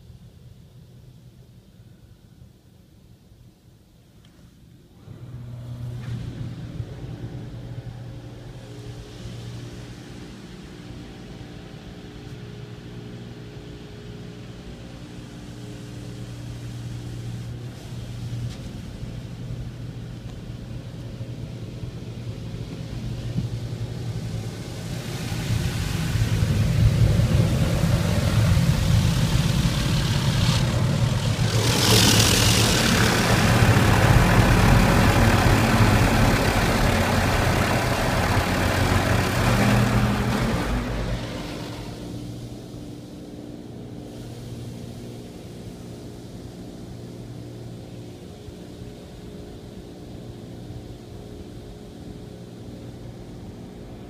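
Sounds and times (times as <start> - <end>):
car wash pumps humming: 5.0 - 43.2
water spray on car: 24.6 - 42.1
high-pressure jets hissing: 27.8 - 42.1.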